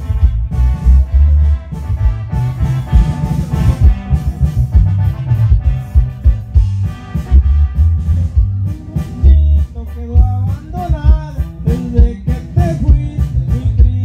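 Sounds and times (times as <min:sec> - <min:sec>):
amplified band music: 0:00.0 - 0:14.0
man singing into microphone: 0:08.5 - 0:14.0.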